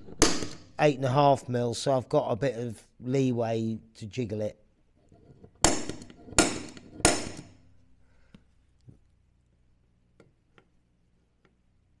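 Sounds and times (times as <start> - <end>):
punch striking metal plate: 0.0 - 0.8, 5.6 - 7.6.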